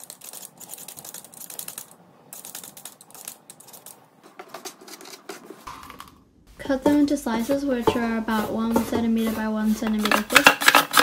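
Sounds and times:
peeler scraping potato skin: 0:08.3 - 0:11.0.

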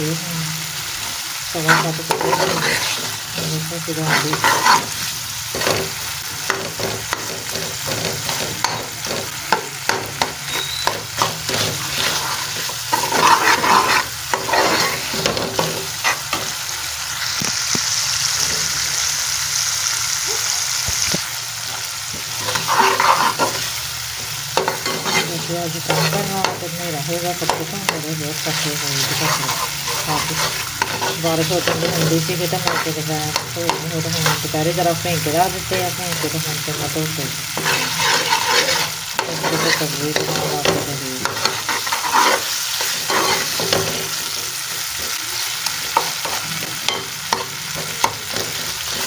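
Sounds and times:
food sizzling in oil: 0:00.0 - 0:49.0
metal spoon scraping a pot: 0:01.6 - 0:16.5, 0:22.4 - 0:23.8, 0:24.6 - 0:34.5, 0:37.5 - 0:45.2.

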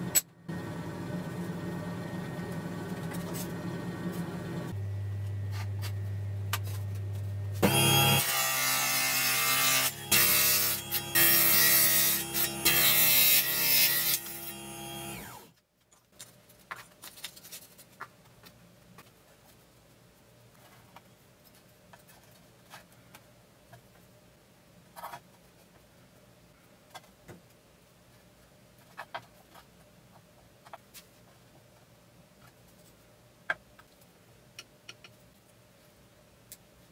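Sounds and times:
table saw cutting wood: 0:07.6 - 0:15.5.

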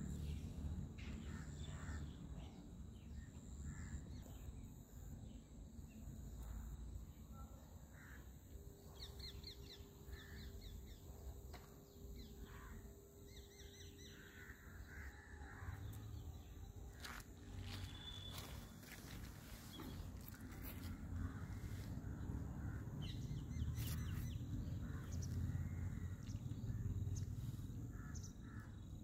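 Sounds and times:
low outdoor rumble: 0:14.3 - 0:29.0.

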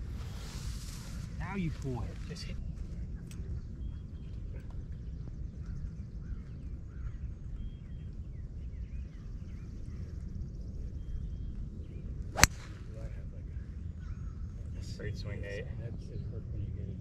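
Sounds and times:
steady low rumble: 0:00.0 - 0:03.8
birds chirping: 0:01.4 - 0:15.4
golf club striking ball: 0:12.4 - 0:13.0.

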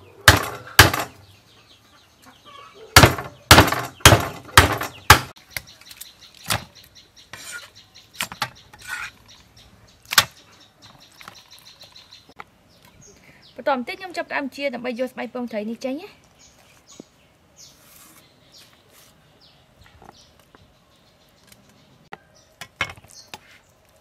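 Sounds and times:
cleaver chopping on wooden board: 0:00.3 - 0:01.1, 0:03.0 - 0:05.3.

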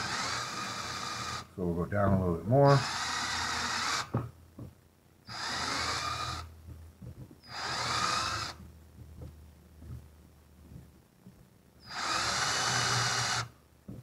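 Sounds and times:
power drill boring into wood: 0:00.0 - 0:01.5, 0:02.6 - 0:04.2, 0:05.3 - 0:06.5, 0:07.4 - 0:08.6, 0:11.8 - 0:13.5.

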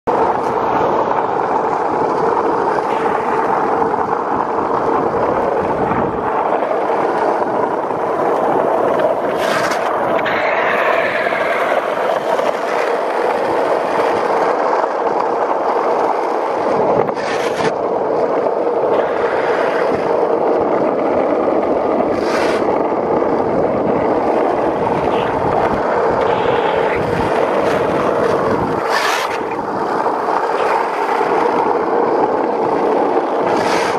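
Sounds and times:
skateboard wheels rolling on asphalt: 0:00.0 - 0:33.9
hissing scrapes: 0:22.1 - 0:22.7, 0:28.6 - 0:29.6, 0:33.4 - 0:33.9.

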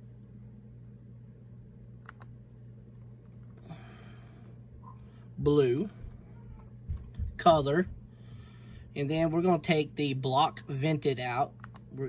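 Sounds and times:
steady low hum: 0:00.0 - 0:12.0
laptop keyboard typing: 0:02.0 - 0:02.3, 0:02.9 - 0:03.7, 0:05.7 - 0:07.4.

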